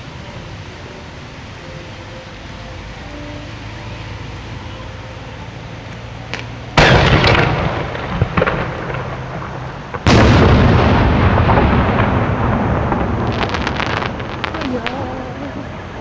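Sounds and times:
firework booms with rolling echo: 6.3s - 16.0s.

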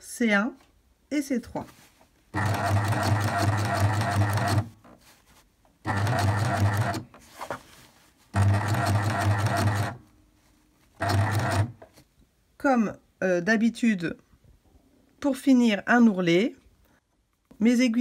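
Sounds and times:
coverstitch machine sewing: 2.4s - 4.8s, 5.9s - 7.1s, 8.3s - 10.0s, 11.0s - 11.8s.

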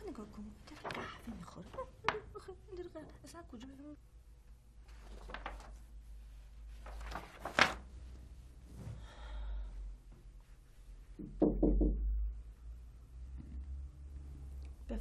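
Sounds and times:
paper crackle: 0.6s - 2.2s, 4.8s - 6.0s, 6.6s - 7.9s
paper sheets rustling: 0.6s - 2.3s, 4.8s - 8.2s.

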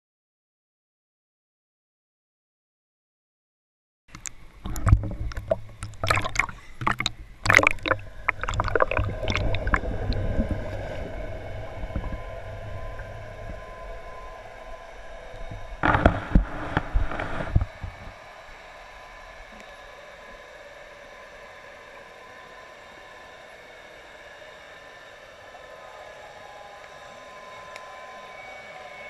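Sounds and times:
water splashing and bubbling: 4.2s - 14.2s
muffled underwater hiss: 4.2s - 21.9s.

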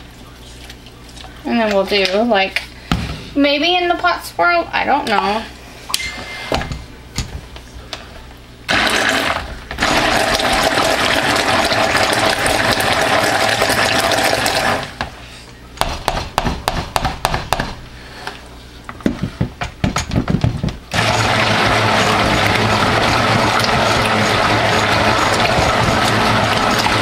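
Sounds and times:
stick blender running: 8.7s - 15.0s, 20.9s - 27.0s.

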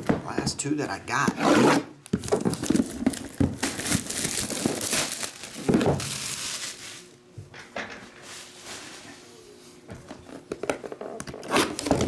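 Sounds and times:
plastic wrap crinkling and tearing: 2.0s - 7.2s.

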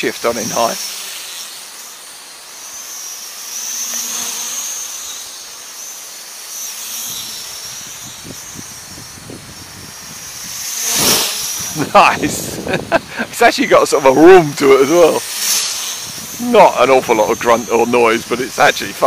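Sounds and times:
toy quadcopter motors whining: 0.0s - 19.0s
wind buffeting microphone: 7.1s - 15.2s, 16.0s - 19.0s.

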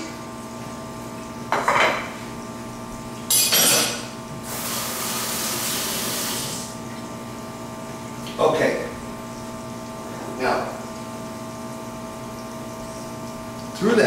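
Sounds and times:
dishes clattering in metal sink: 1.5s - 2.2s, 3.3s - 4.2s.

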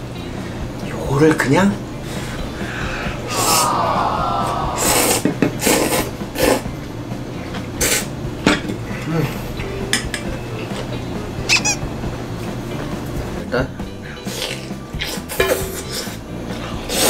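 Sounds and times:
noodles being slurped: 4.8s - 6.6s, 7.8s - 8.1s, 16.8s - 17.0s.

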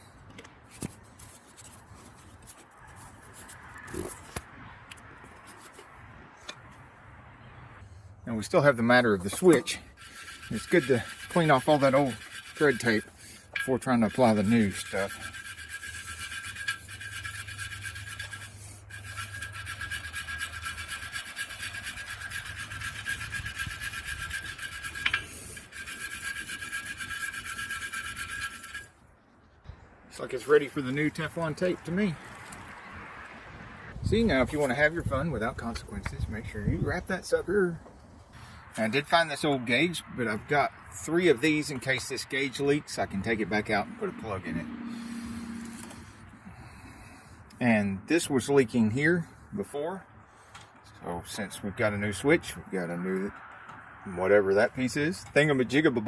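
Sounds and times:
screwdriver clicking and scraping metal: 0.3s - 6.6s, 9.2s - 29.0s
wire brush scrubbing pipe threads: 0.7s - 4.4s, 5.3s - 6.6s, 8.3s - 29.0s, 30.1s - 33.3s, 34.1s - 37.4s, 38.3s - 49.8s
sharp metal ticks: 9.3s - 29.0s.

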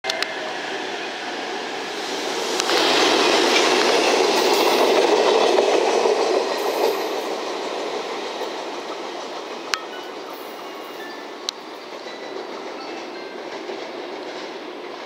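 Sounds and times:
electric trains passing: 0.1s - 15.0s.

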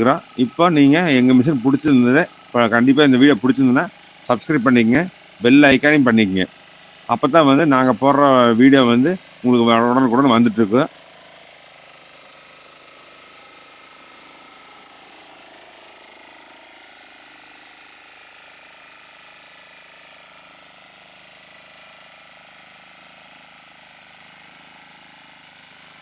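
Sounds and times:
rotavator tilling soil: 0.0s - 18.0s
faint diesel engine running: 0.0s - 26.0s.

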